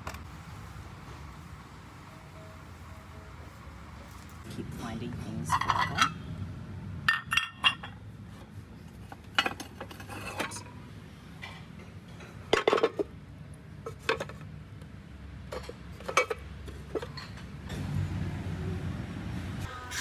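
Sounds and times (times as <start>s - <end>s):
ceramic dishes clinking: 5.5s - 6.2s, 7.1s - 8.0s, 12.5s - 13.1s.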